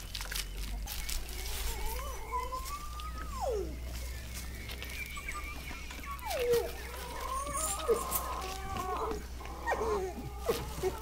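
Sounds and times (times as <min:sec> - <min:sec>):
dog whining: 0:01.3 - 0:04.1, 0:05.1 - 0:11.0.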